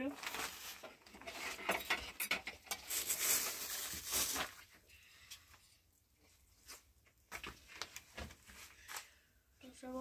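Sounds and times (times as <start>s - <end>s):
plastic bag rustling: 0.0s - 4.9s.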